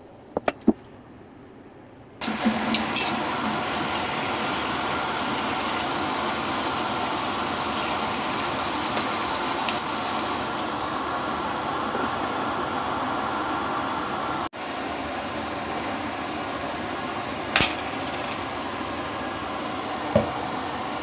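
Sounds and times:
chicken wings sizzling in a pan: 0:02.2 - 0:11.8.

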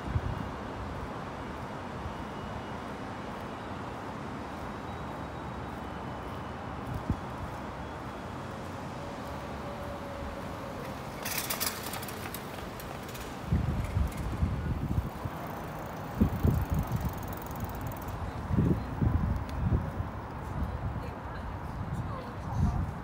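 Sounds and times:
city traffic hum: 0:00.0 - 0:23.0
wind buffeting microphone: 0:10.0 - 0:23.0.

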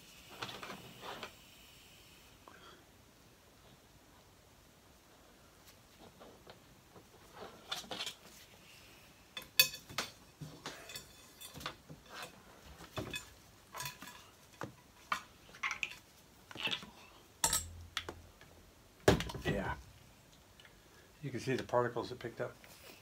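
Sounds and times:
metal clinks and scrapes: 0:09.4 - 0:14.7, 0:17.4 - 0:17.8.

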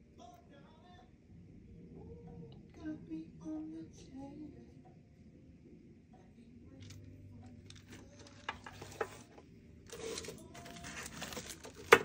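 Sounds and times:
low steady hum: 0:00.0 - 0:12.0
paper and plastic rustle: 0:07.7 - 0:12.0.

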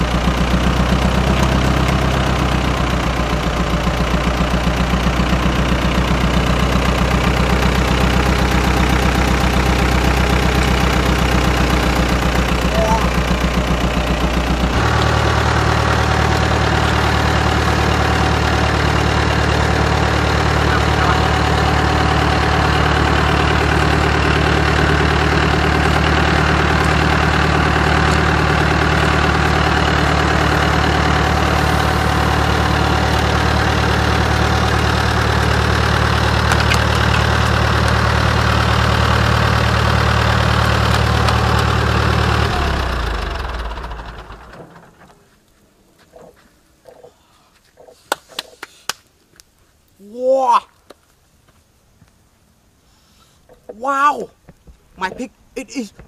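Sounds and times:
tractor engine running: 0:00.0 - 0:47.1.

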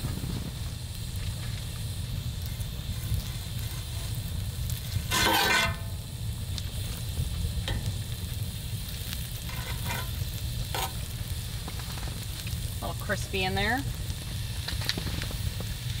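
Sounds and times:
butter sizzling in a skillet: 0:00.0 - 0:16.0
fork scraping iron pan: 0:04.9 - 0:05.9, 0:09.5 - 0:11.0.

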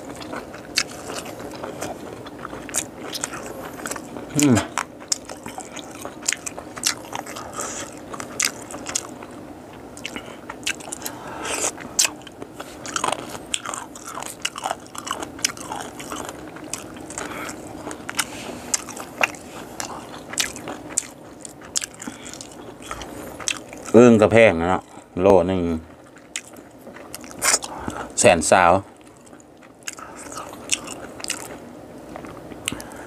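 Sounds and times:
person chewing with crunches: 0:00.0 - 0:33.0.

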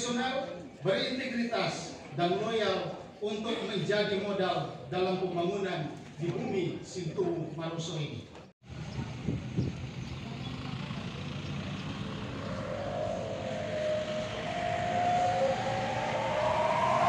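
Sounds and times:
motor vehicle approaching: 0:08.7 - 0:17.0
whine rising in pitch: 0:11.5 - 0:17.0.

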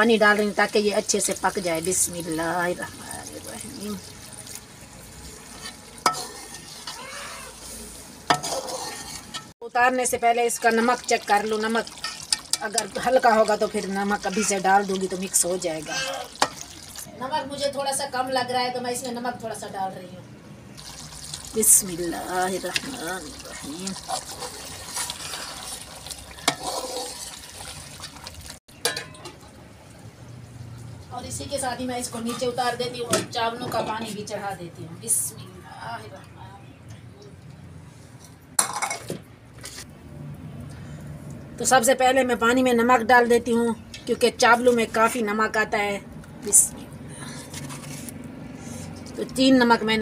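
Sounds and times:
food sizzling in a pot: 0:00.0 - 0:17.1, 0:20.8 - 0:29.1.

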